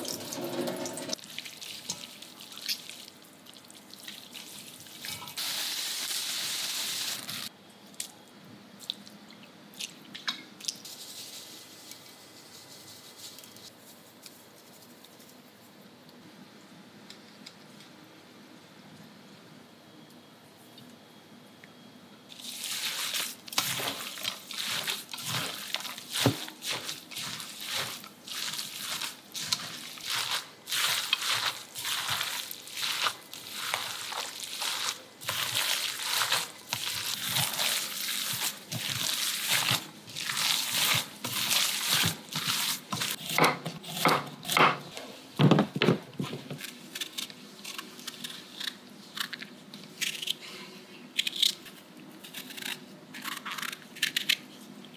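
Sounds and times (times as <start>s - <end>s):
wet squishing of meat filling: 1.2s - 5.1s, 22.3s - 43.2s.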